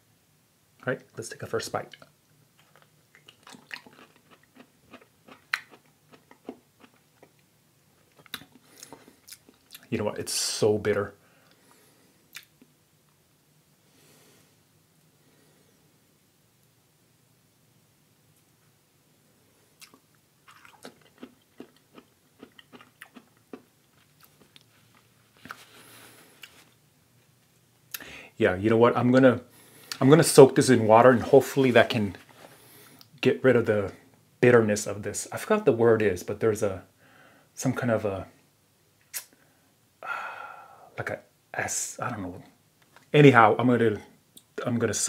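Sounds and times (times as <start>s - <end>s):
person chewing with wet smacks: 1.9s - 7.5s, 8.1s - 9.9s, 19.8s - 25.6s.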